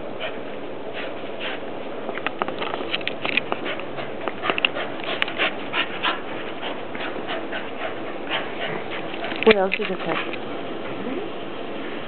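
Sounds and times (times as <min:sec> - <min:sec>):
dog sniffing and breathing quickly: 0:00.0 - 0:01.8, 0:03.4 - 0:10.4.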